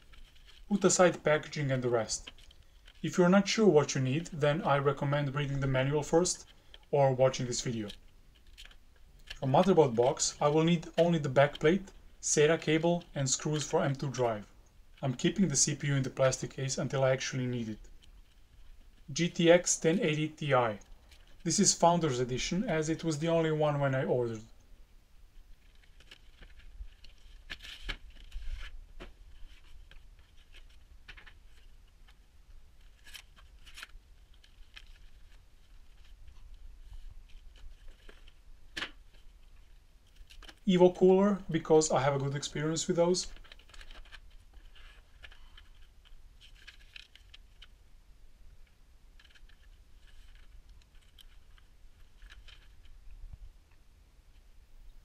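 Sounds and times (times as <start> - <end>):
cardboard packaging rustling: 0.0 - 0.7, 25.4 - 40.7, 43.3 - 47.8, 49.1 - 53.3
paper sheet rustling: 0.0 - 14.5, 25.5 - 47.8, 49.2 - 53.3
plastic wrap rustling: 43.3 - 47.8.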